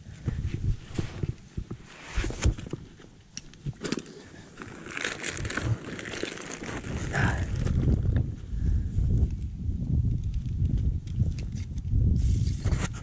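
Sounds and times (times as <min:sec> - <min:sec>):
fabric rubbing on microphone: 0:00.3 - 0:02.8, 0:12.2 - 0:13.0.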